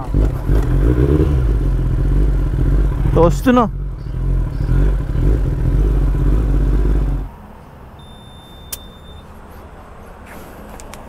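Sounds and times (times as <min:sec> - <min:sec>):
motorcycle engine rumbling: 0:00.0 - 0:11.0
short high beep: 0:08.0 - 0:09.3
sharp click: 0:10.8 - 0:11.0.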